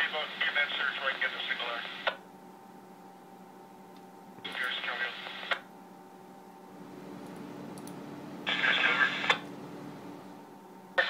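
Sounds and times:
radio noise burst: 0.0 - 2.2, 4.5 - 5.6, 8.5 - 9.4
steady low hum: 0.0 - 11.0.

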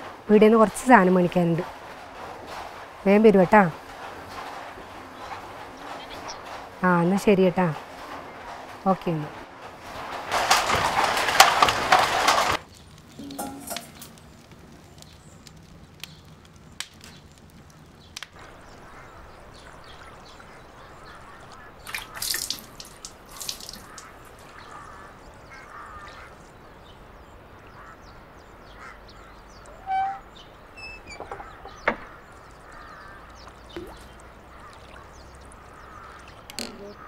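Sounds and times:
bird calls: 5.0 - 6.6, 18.0 - 37.0.

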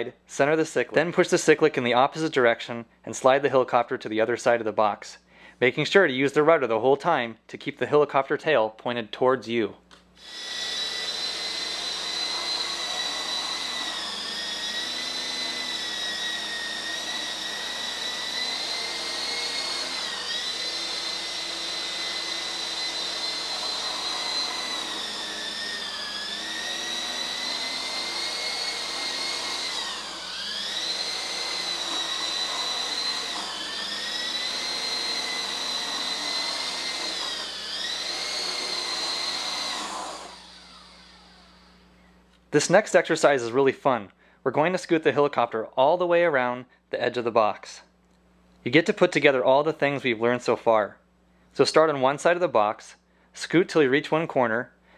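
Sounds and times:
rc helicopter rotor whine: 10.2 - 41.7.

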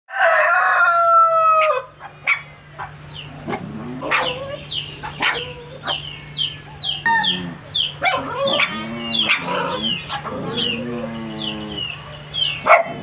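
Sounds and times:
rooster crowing: 0.1 - 2.0
puppies yelping and whimpering: 3.4 - 12.2.

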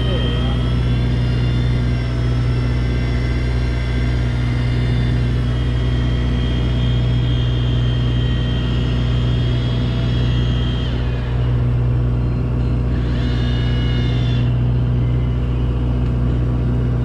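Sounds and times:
boat engine humming: 0.0 - 17.0
thin high whine: 0.0 - 17.0.

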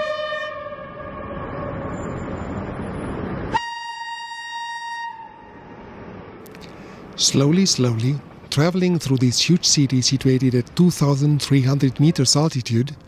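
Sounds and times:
train horn blast: 0.0 - 1.9, 3.5 - 5.7
steady background rumble: 5.3 - 13.0.

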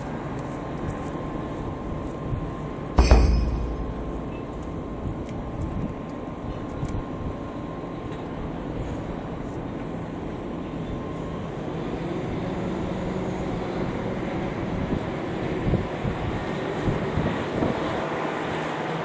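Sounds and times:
distant machinery rumble: 1.2 - 6.7
low hum: 3.0 - 5.9.

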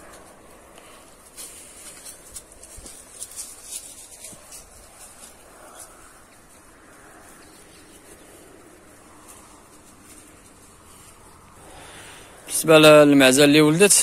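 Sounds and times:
faint outdoor background: 0.0 - 14.0
rustling through grass: 0.0 - 14.0.

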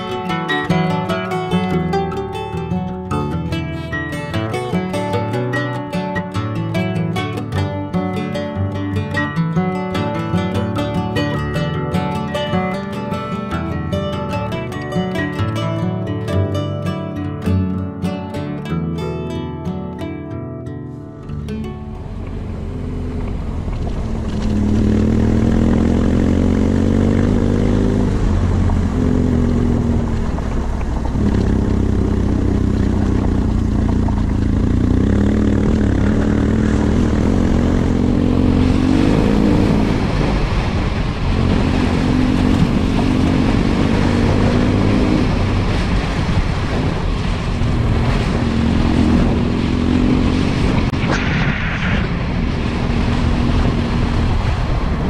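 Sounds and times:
motorcycle engine running: 21.8 - 50.9
wind rushing: 22.4 - 55.0.

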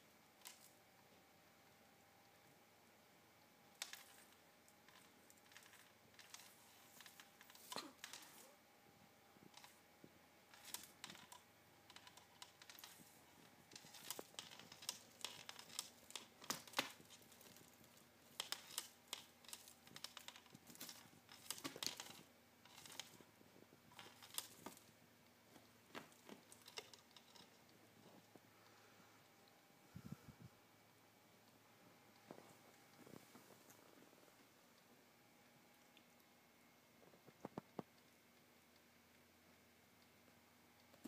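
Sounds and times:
cat toy clicks and rustles: 0.3 - 0.8, 3.7 - 28.5.

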